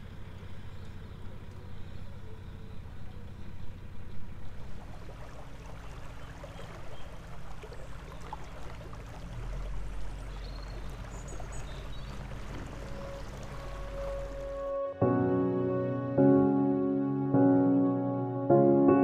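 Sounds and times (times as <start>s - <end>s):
water washing along boat hull: 0.0s - 14.7s
boat engine humming: 0.0s - 19.0s.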